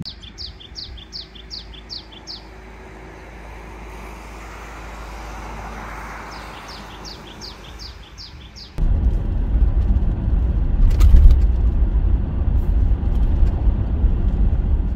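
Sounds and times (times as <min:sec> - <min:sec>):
songbird singing: 0:00.0 - 0:08.8
outdoor rushing noise: 0:00.8 - 0:14.9.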